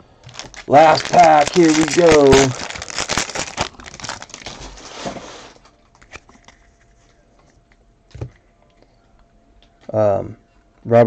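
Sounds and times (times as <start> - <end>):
wrapper crinkling as torn open: 0.2 - 6.6.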